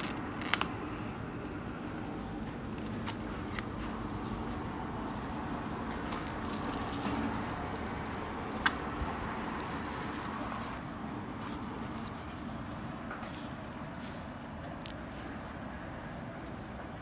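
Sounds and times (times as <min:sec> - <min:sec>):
plastic film crinkling: 0:00.0 - 0:03.7, 0:05.5 - 0:10.8.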